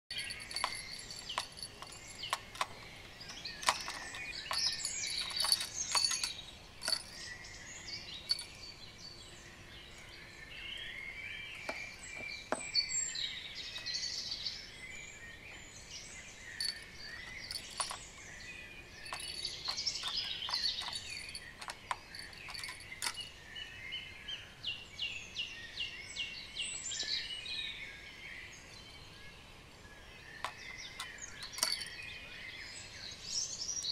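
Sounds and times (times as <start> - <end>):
songbirds singing and chirping: 0.0 - 33.9
sharp clicks and knocks: 0.2 - 7.2, 16.6 - 18.1, 19.0 - 23.3, 30.4 - 31.9.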